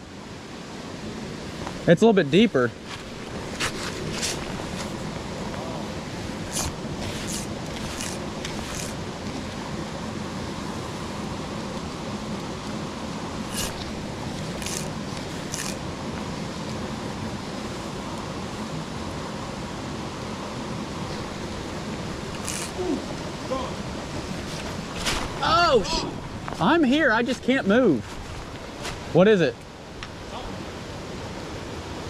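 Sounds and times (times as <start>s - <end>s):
creek running over rocks: 1.4s - 31.3s
fly line swishing: 2.8s - 9.5s, 13.4s - 15.9s, 21.1s - 25.4s.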